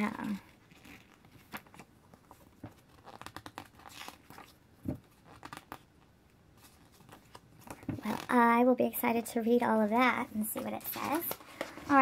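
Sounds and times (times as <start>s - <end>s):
paper pages rustling: 0.3s - 5.9s, 6.6s - 8.4s, 10.3s - 12.0s.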